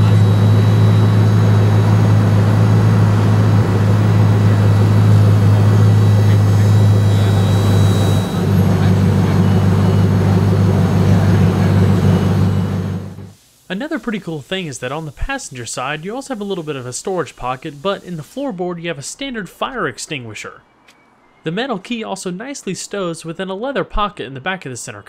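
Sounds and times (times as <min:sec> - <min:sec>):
car engine idling: 0:00.0 - 0:13.4.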